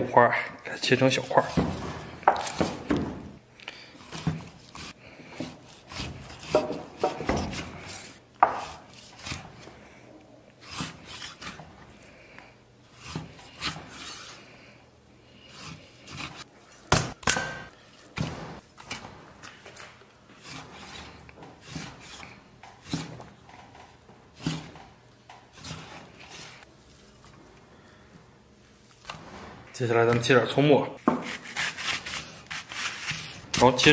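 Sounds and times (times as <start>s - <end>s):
cleaver slicing through meat: 4.0s - 9.7s, 15.5s - 16.9s.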